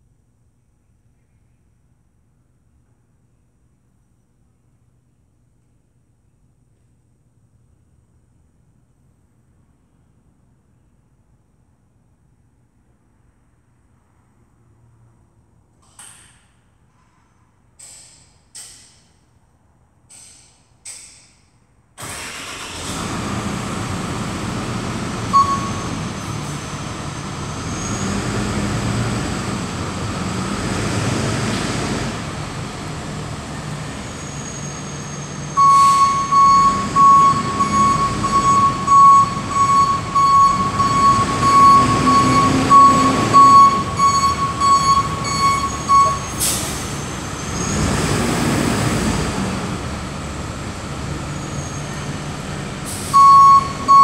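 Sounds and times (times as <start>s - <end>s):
truck engine running: 22.1s - 54.0s
reversing alarm beeping: 25.3s - 26.5s, 34.1s - 46.6s, 53.1s - 54.0s.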